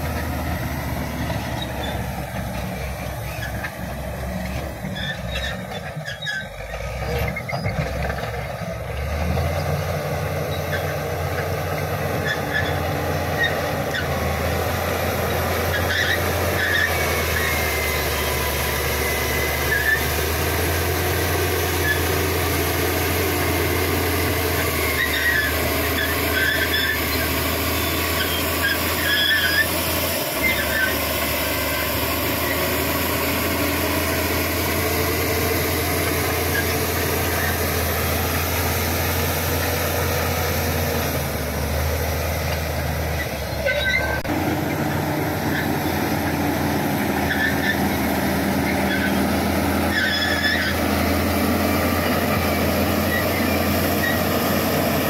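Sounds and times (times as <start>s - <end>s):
steel tracks squealing: 0.0s - 9.2s, 10.4s - 41.8s, 42.4s - 55.0s
bulldozer diesel engine drone: 0.0s - 55.0s.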